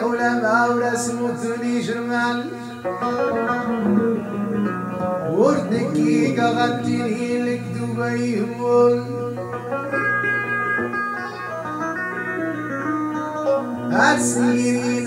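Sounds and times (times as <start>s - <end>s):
man singing: 0.0s - 9.8s, 13.9s - 15.0s
banjo: 0.0s - 15.0s
electric guitar: 0.0s - 15.0s.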